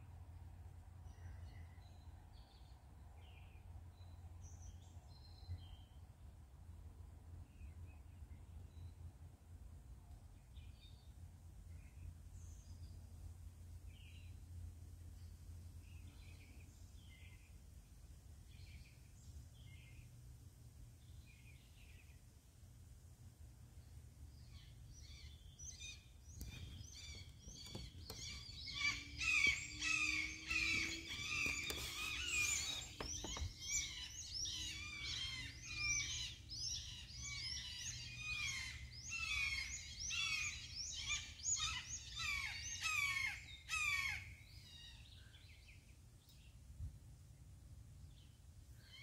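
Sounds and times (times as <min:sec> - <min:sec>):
low background noise: 0:00.0 - 0:49.0
bird calling in falling notes: 0:25.8 - 0:36.3.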